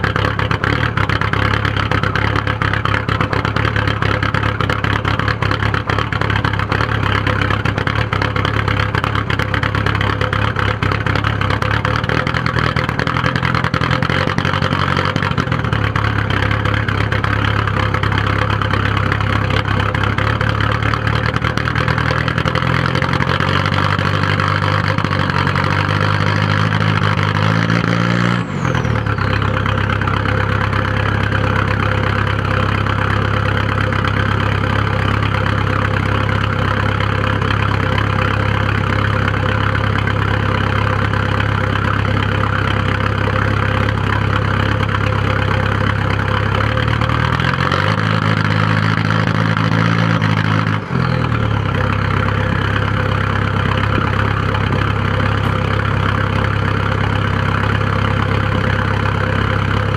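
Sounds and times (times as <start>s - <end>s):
diesel engine idling roughly: 0.0s - 59.9s.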